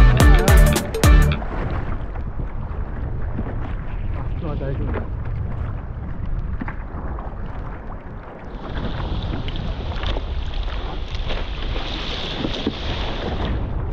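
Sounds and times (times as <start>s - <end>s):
wind buffeting microphone: 1.4s - 13.9s.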